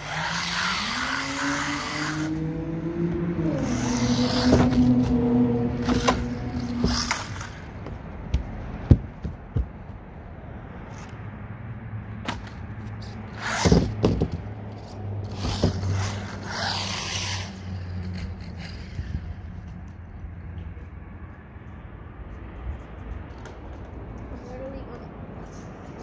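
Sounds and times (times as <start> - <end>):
rc car scraping on concrete: 0.0 - 8.0, 12.4 - 20.2
sharp knocks: 8.3 - 10.0.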